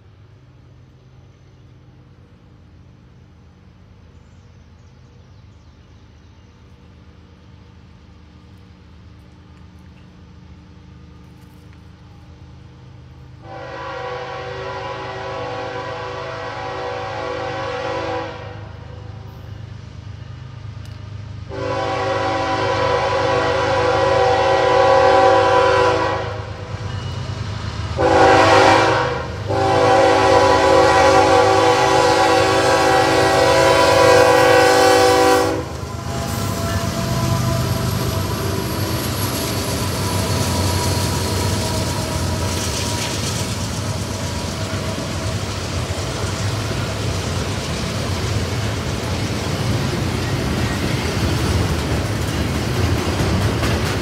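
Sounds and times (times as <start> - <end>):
diesel engines rumbling: 0.0 - 54.0
locomotive air horn blasts: 13.4 - 19.1, 21.5 - 26.6, 28.0 - 38.6.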